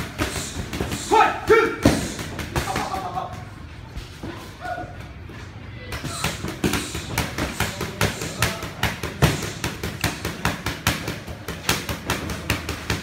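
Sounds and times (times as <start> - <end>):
boxing gloves hitting focus mitts: 6.0 - 13.0.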